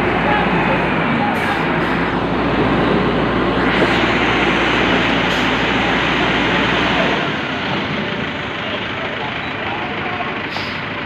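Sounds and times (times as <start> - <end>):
diesel engine under load: 0.0 - 11.0.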